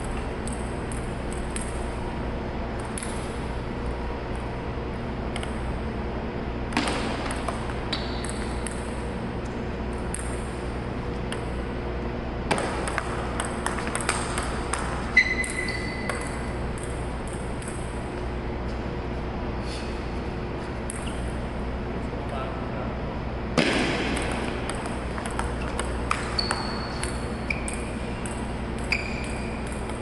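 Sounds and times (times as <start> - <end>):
table tennis ball clicking: 0.0 - 1.9, 5.3 - 5.6, 6.7 - 9.1, 12.5 - 17.9, 24.1 - 30.0
steady low hum: 0.0 - 30.0.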